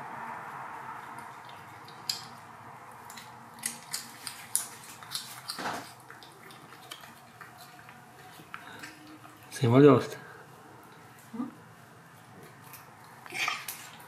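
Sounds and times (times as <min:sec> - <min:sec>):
cat chewing with wet crunches: 0:00.4 - 0:09.6.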